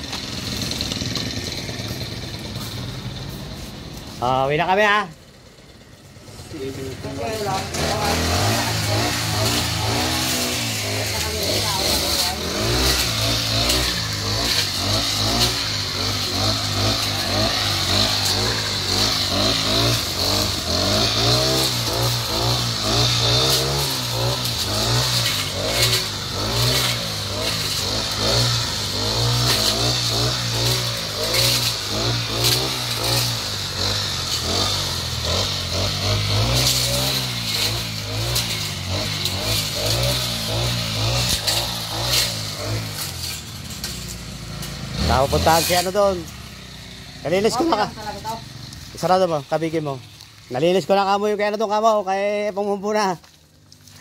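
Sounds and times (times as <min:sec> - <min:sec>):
brush cutter engine revving: 0:00.0 - 0:54.0.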